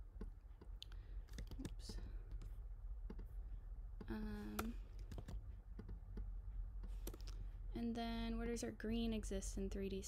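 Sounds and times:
computer mouse and keyboard clicks: 0:00.2 - 0:03.3, 0:04.0 - 0:07.4.

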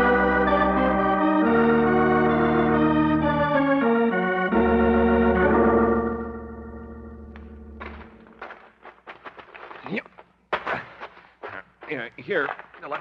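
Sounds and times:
organ playing sustained chords: 0:00.0 - 0:08.5.

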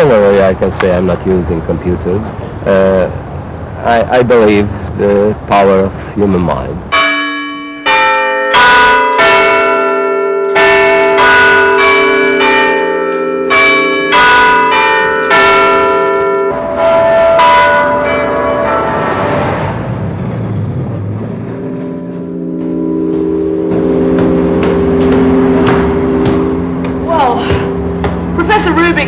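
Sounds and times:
clock tower bells ringing: 0:06.9 - 0:19.5, 0:21.4 - 0:29.0.

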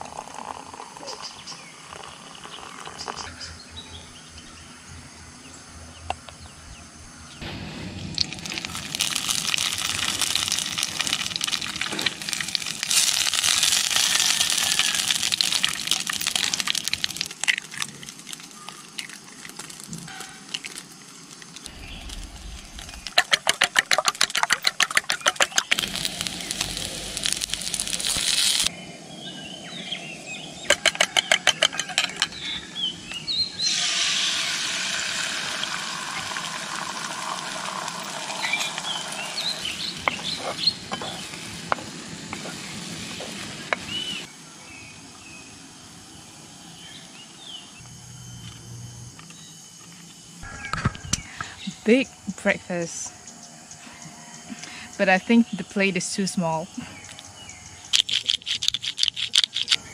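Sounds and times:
eggs sizzling in hot pan: 0:08.0 - 0:28.7, 0:33.6 - 0:44.3
sausage sizzling in frying pan: 0:08.1 - 0:19.9, 0:25.7 - 0:28.7, 0:33.7 - 0:44.3.

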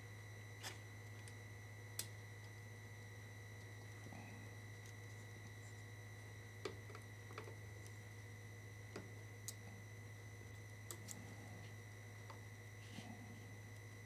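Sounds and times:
faint electrical hum: 0:00.0 - 0:14.0
thin high whine: 0:00.0 - 0:14.0.

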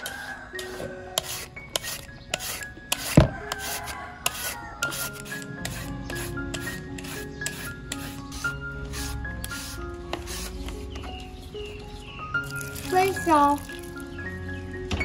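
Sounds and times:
peeler rasping down mango: 0:00.0 - 0:10.9.

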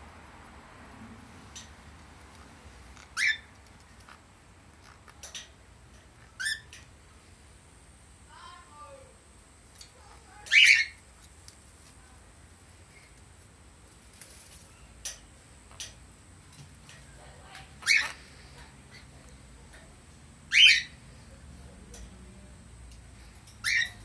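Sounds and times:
parrot squawking: 0:03.2 - 0:03.5, 0:10.4 - 0:11.0, 0:17.8 - 0:18.2, 0:20.5 - 0:21.0, 0:23.6 - 0:24.0.

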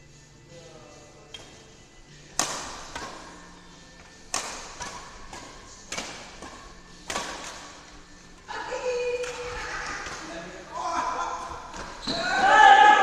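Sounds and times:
racket striking shuttlecock: 0:02.3 - 0:03.4, 0:04.2 - 0:07.8, 0:09.2 - 0:10.3.

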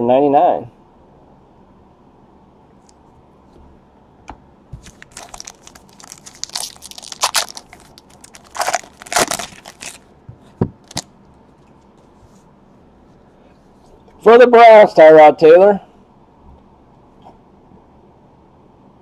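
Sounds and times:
foil wrapper crinkling and tearing: 0:04.8 - 0:10.1, 0:10.8 - 0:11.1.

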